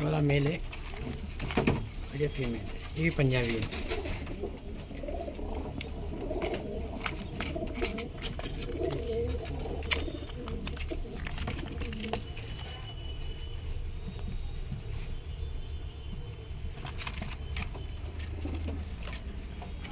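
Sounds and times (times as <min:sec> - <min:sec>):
pigeons cooing: 0:02.7 - 0:13.0, 0:16.1 - 0:19.9.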